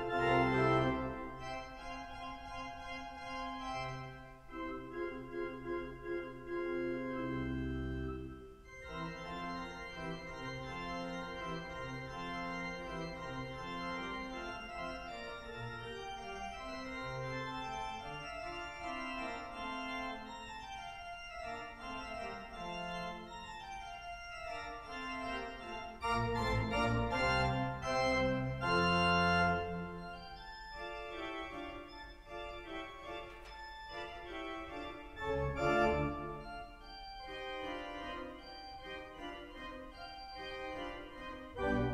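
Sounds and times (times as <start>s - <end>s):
pipe organ playing: 0.0s - 41.9s.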